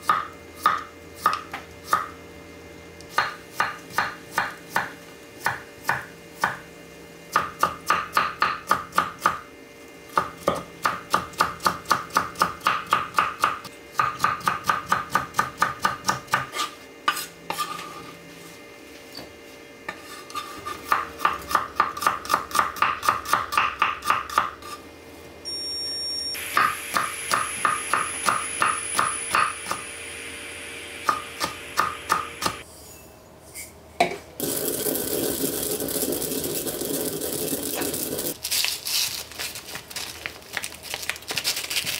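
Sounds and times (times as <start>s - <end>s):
knife chopping on cutting board: 3.1s - 6.6s, 10.1s - 17.3s, 19.9s - 24.8s
steady hiss: 26.4s - 32.6s.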